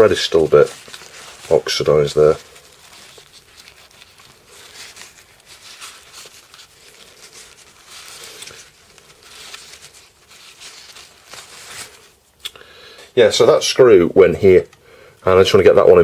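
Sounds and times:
paper towel rustling and crinkling: 0.0 - 12.4.

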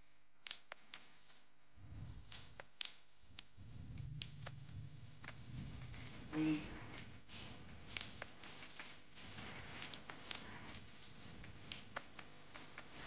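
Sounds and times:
person humming: 6.3 - 7.0.

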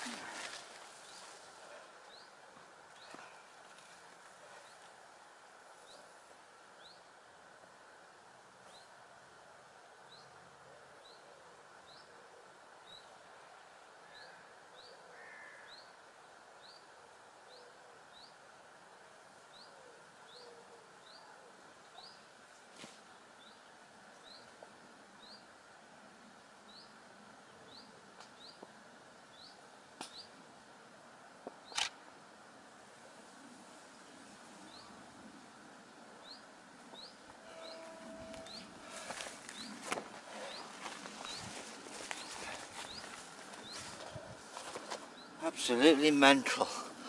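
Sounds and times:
faint outdoor background: 0.0 - 47.0
sharp clicks: 31.7 - 32.0
bird chirping: 36.2 - 46.4.

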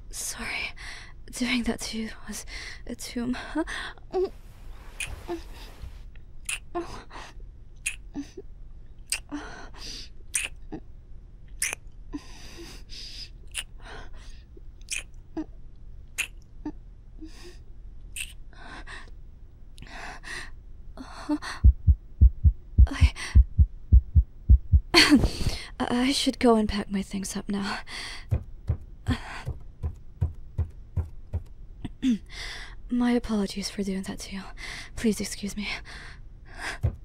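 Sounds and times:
mouth clicks: 6.4 - 6.7, 7.8 - 8.1, 9.1 - 9.3, 10.3 - 10.8, 11.6 - 11.8, 13.5 - 13.8, 14.8 - 15.5, 16.2 - 16.4, 18.2 - 18.4
heartbeat thuds: 21.6 - 25.5, 28.2 - 31.5, 36.7 - 37.0
woman gasping and breathing: 25.0 - 25.7.

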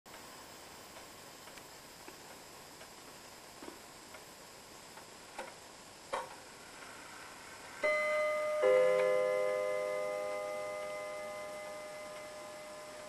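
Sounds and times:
faint clock clicks: 0.9 - 3.0, 4.9 - 6.9
clock chime strikes: 7.8 - 13.0.

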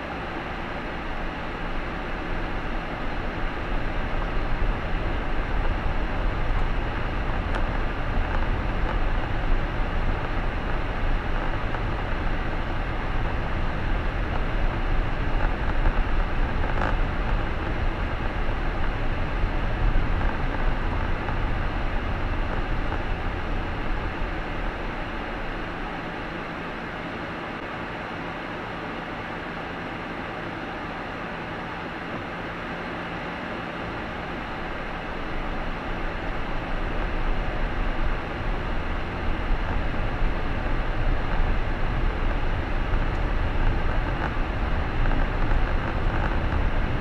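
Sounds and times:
tyre and road rumble: 0.0 - 27.6, 33.1 - 47.0
low engine hum: 0.0 - 47.0.

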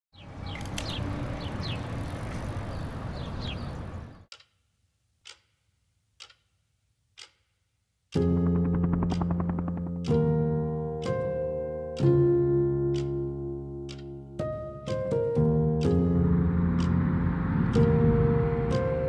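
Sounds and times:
bird chirps: 0.2 - 1.9, 2.6 - 4.3
clock ticking: 4.3 - 4.6, 5.2 - 5.6, 6.2 - 7.5, 8.1 - 10.4
low outdoor rumble: 15.6 - 19.0.

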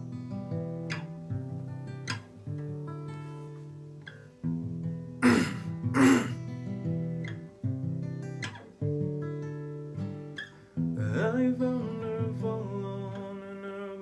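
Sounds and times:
acoustic guitar strummed: 0.0 - 14.0
person clearing throat: 5.2 - 6.4.

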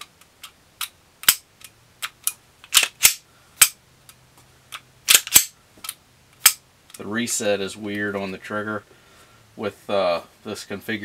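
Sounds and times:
pistol dry-fire clicks: 0.2 - 7.0.

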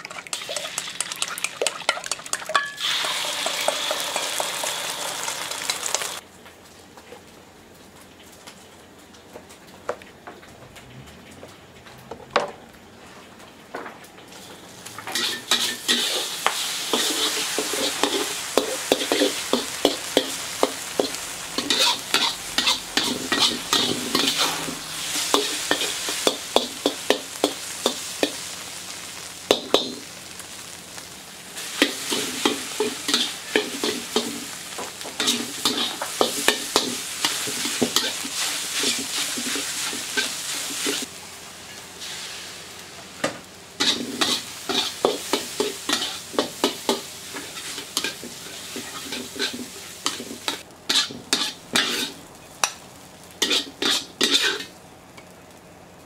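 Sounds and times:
eggs sizzling in a wok: 0.0 - 6.2, 14.3 - 56.0
metal spatula scraping a wok: 15.1 - 28.4, 31.6 - 41.1, 43.8 - 52.2, 53.4 - 54.7.

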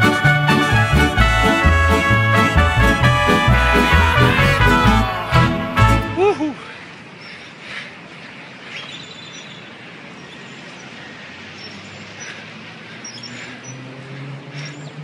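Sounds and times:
bird chirps: 8.6 - 12.4, 13.0 - 13.9.

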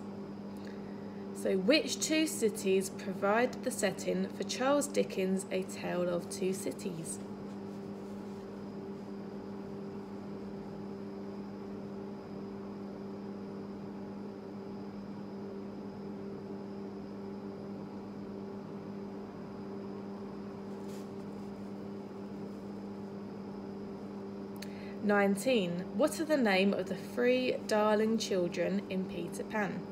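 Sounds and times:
electrical hum: 0.0 - 29.9.

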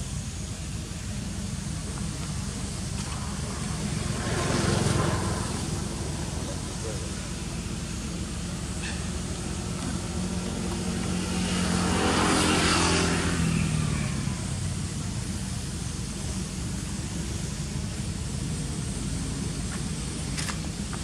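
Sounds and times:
steady low hum: 0.0 - 21.0
vehicle passing by: 2.9 - 15.6.

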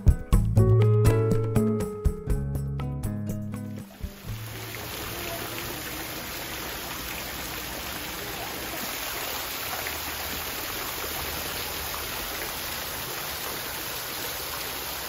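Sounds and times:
water splashing into a pond: 3.8 - 15.0.

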